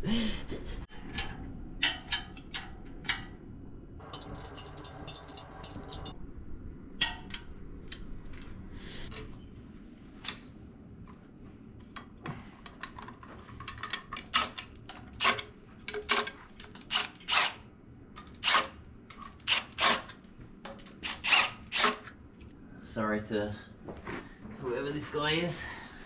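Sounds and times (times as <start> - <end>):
metal tools clacking on engine block: 4.0 - 6.2.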